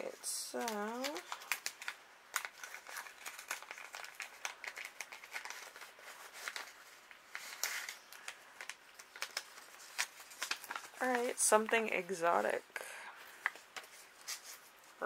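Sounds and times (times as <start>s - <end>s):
paper cards rustling: 0.0s - 12.6s, 13.2s - 15.0s
small clicks and crackles: 0.5s - 11.8s.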